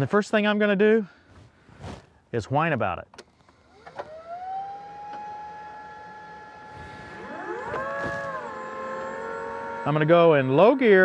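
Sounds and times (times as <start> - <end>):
lower motor whine: 3.2 - 11.0
electric motor whining: 3.5 - 11.0.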